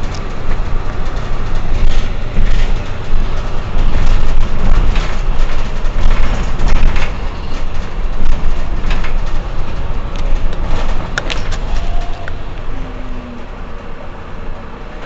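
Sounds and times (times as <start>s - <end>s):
bus diesel engine idling: 0.0s - 15.0s.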